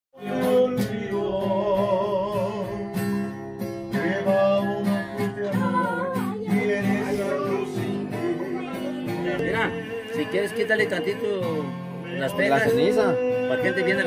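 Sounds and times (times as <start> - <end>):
strummed acoustic guitar: 0.2 - 14.0
person singing: 4.0 - 14.0.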